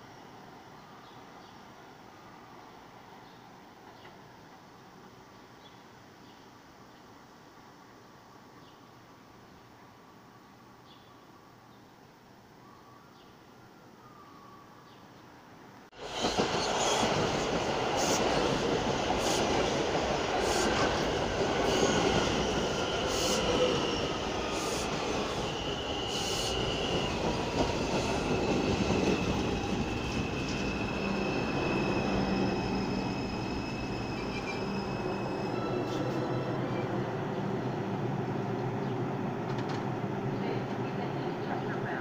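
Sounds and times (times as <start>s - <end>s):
high wheel squeal: 16.0s - 19.6s, 20.4s - 36.8s
train wheels rumbling and clicking: 39.4s - 39.9s.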